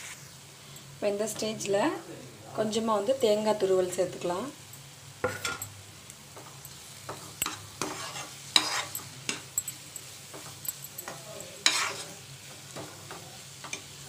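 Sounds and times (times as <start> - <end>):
faint sizzle: 0.0 - 14.0
metal spatula scraping a pan: 7.2 - 9.4, 11.0 - 12.2.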